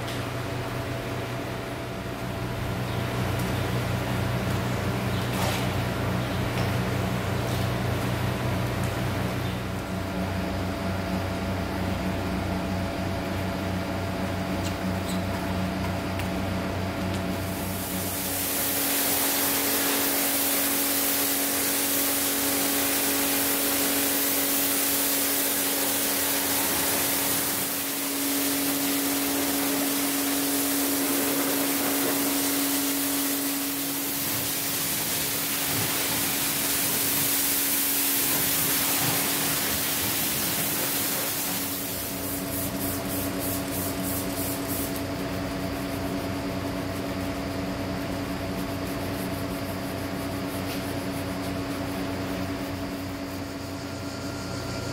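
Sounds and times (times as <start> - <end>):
constant hum: 0.0 - 54.9
pressure washer spraying water: 17.4 - 45.2.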